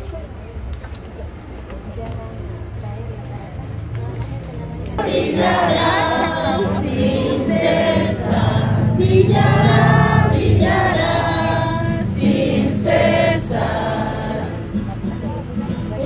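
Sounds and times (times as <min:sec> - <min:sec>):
group singing a hymn: 0:05.0 - 0:15.0.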